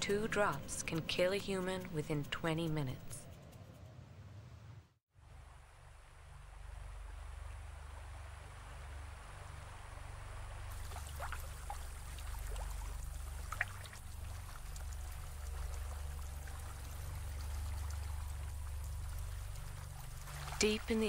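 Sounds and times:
steady low rumble: 0:00.0 - 0:21.0
water trickling and pouring: 0:10.6 - 0:21.0.

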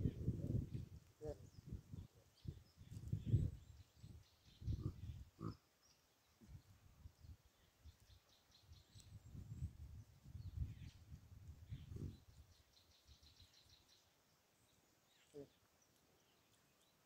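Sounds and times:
high chirps of birds or insects: 0:00.1 - 0:17.0
baboons grunting: 0:04.6 - 0:05.6.

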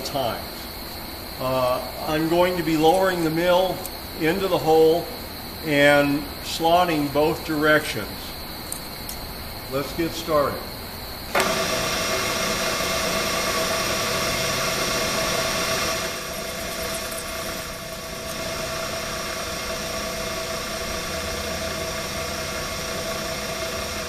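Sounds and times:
milling machine spindle whine: 0:00.0 - 0:24.0.

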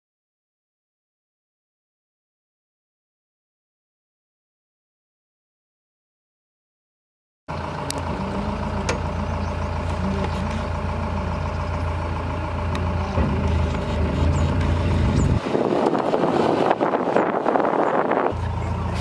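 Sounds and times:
vehicle engine humming: 0:07.5 - 0:19.0
broad rushing noise: 0:14.1 - 0:19.0.

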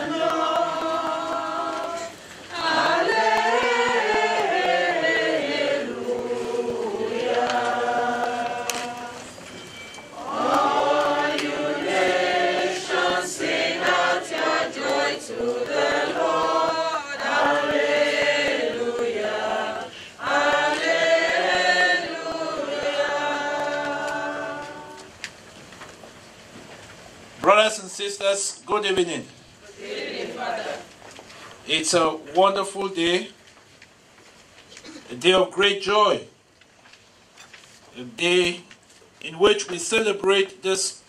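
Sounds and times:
choir singing: 0:00.0 - 0:09.4, 0:10.1 - 0:25.1, 0:29.7 - 0:30.9.

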